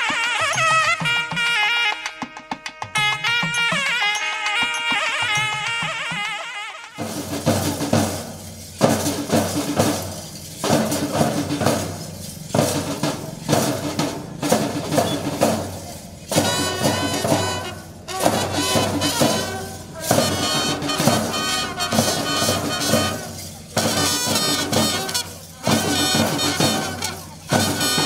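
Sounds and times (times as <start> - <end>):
live band playing: 0.0 - 28.0
steady drum beat: 0.0 - 28.0
tambourine: 7.0 - 28.0.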